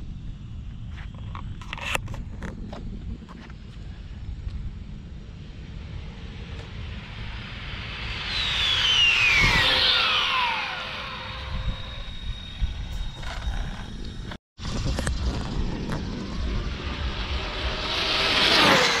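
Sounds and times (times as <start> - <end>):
rc car speeding past: 5.7 - 14.0, 14.6 - 19.0.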